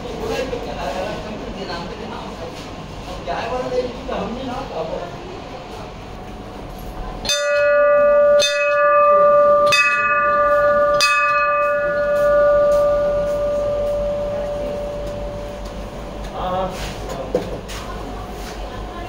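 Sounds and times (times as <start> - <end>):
temple bell ringing: 7.2 - 16.4.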